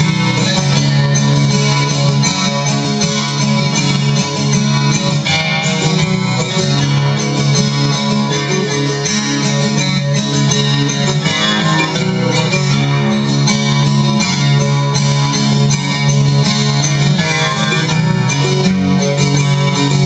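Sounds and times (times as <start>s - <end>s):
picked guitar notes: 0.0s - 20.0s
low bass notes: 10.1s - 15.3s.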